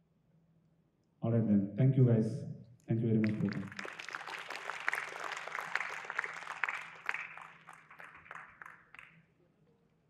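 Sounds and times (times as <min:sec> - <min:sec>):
audience applauding: 0:03.2 - 0:09.2.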